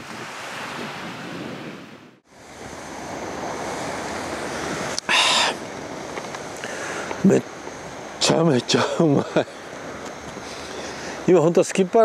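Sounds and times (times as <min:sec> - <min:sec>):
wind on microphone: 0:00.0 - 0:08.2
small waves washing onto beach: 0:00.0 - 0:12.0
loud hissing burst: 0:02.4 - 0:11.4.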